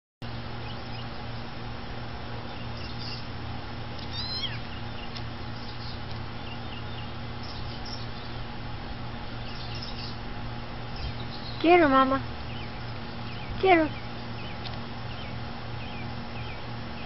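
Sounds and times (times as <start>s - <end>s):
steady low hum: 0.2s - 17.0s
kitten mewing: 4.0s - 4.6s.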